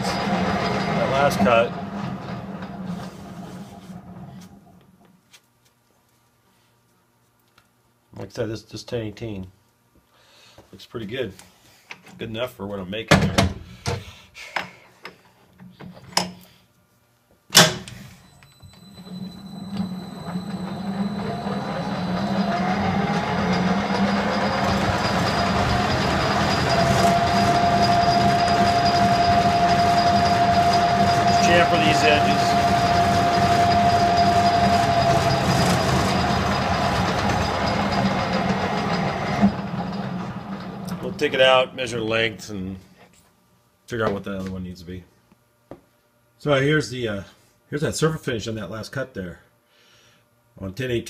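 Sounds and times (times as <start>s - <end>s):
lathe chuck spinning hum: 0.0s - 4.9s, 18.4s - 42.2s
thin steady whine: 17.9s - 39.9s.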